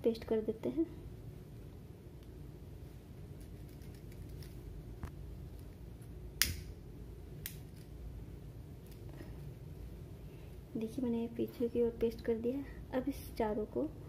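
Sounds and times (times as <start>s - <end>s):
low background hum: 0.0s - 14.0s
lighter clicking: 6.4s - 6.8s.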